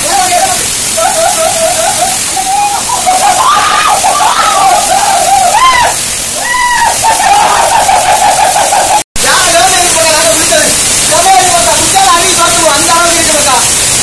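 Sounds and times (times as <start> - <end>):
waterfall splashing: 0.0 - 14.0
people's wavering voices: 0.9 - 9.0.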